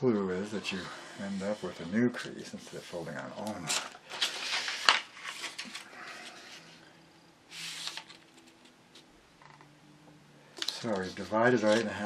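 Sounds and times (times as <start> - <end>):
paper rustling: 1.4 - 6.8, 7.5 - 9.1, 10.6 - 12.0.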